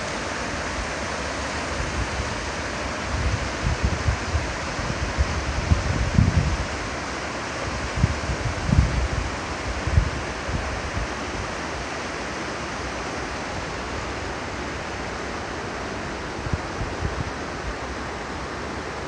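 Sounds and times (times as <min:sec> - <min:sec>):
mountain creek rushing: 0:00.0 - 0:19.0
wind bumps on microphone: 0:03.1 - 0:06.8, 0:07.8 - 0:11.1, 0:16.4 - 0:17.4.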